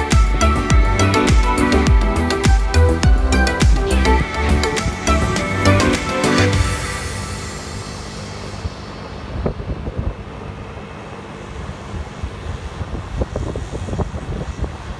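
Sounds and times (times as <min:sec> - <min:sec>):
scooter engine running: 0:00.0 - 0:14.9
low thumps: 0:00.1 - 0:10.3
wind buffeting microphone: 0:00.2 - 0:14.9.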